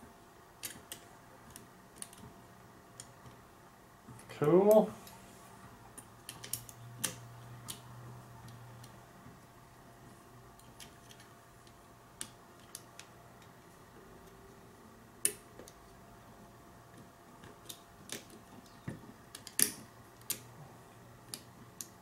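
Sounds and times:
metal lock parts clicking: 6.0s - 7.9s, 19.3s - 20.5s.

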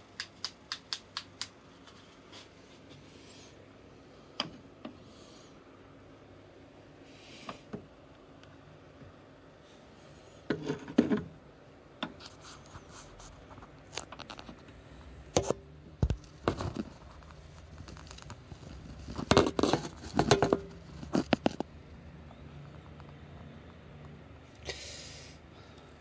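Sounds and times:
camera handling scrapes and knocks: 18.0s - 21.7s.

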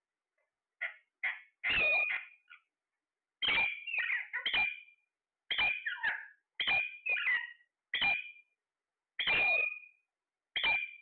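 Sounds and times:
parakeets squawking: 0.8s - 2.6s, 3.4s - 4.9s, 5.5s - 8.3s, 9.2s - 9.9s, 10.6s - 11.0s.

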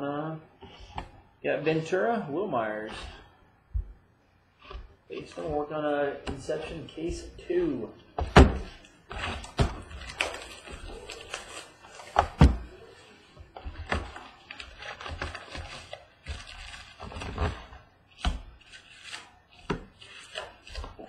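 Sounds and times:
cardboard and foil rustling: 5.2s - 21.0s.

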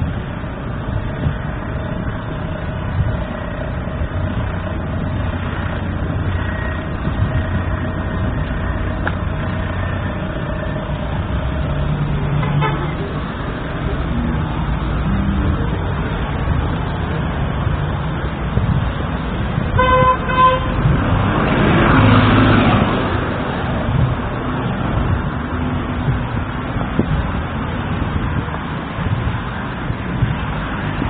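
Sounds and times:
street traffic: 0.0s - 31.0s
car horn toot: 12.4s - 13.0s, 19.8s - 20.8s
vehicle passing close: 20.6s - 31.0s.

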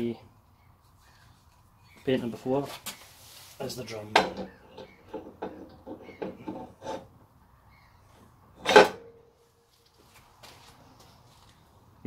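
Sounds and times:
loud metallic clunk with ringing: 8.6s - 9.3s.

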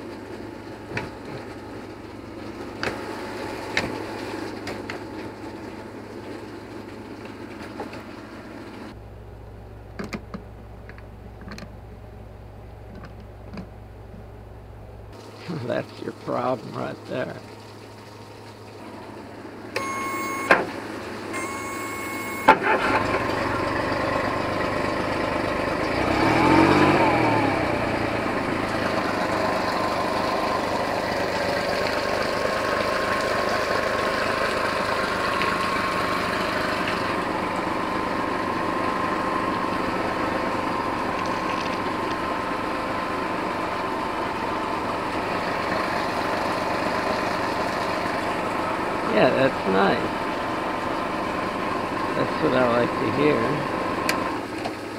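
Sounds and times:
outboard motor running: 0.0s - 9.1s, 15.1s - 54.9s
short beeps: 19.8s - 20.6s, 21.4s - 22.6s.

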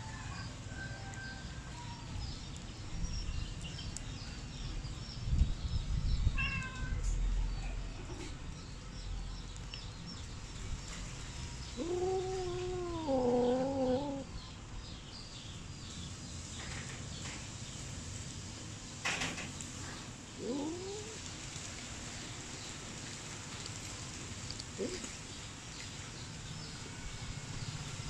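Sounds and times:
cat meowing: 6.4s - 7.1s, 11.8s - 14.3s, 20.4s - 21.2s.

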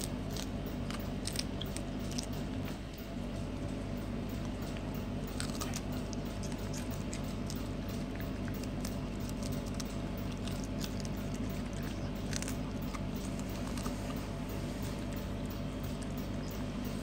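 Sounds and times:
dog chewing crisp lettuce: 0.0s - 17.0s
low hum: 0.0s - 17.0s.

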